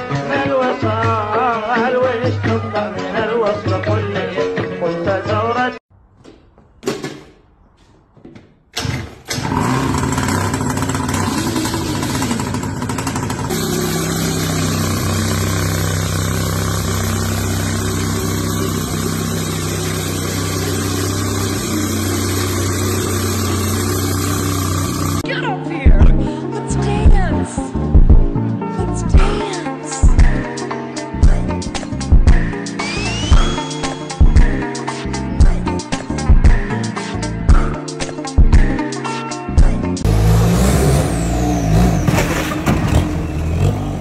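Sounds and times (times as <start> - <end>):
small engine running: 9.3 - 25.2, 32.8 - 33.6, 40.1 - 44.0.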